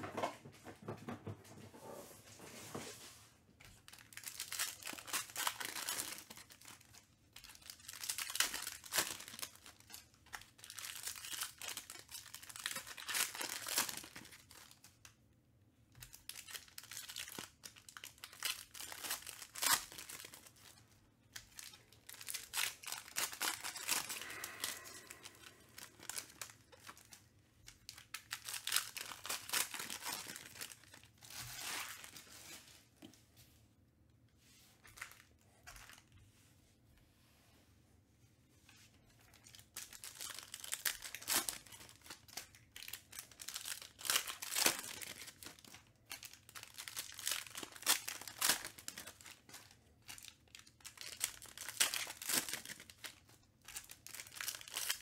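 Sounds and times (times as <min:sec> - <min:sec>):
card pack wrappers crinkling: 0:03.8 - 0:15.0, 0:16.0 - 0:32.6, 0:39.2 - 0:55.0.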